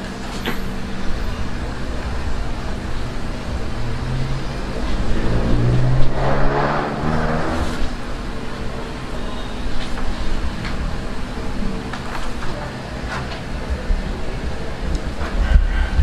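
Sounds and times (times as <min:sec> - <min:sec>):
engine hum: 0:00.0 - 0:09.4.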